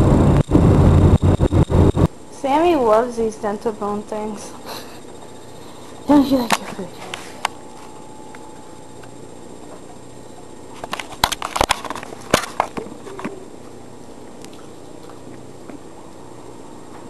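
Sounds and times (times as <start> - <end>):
sharp clicks and crunches: 10.8 - 13.4.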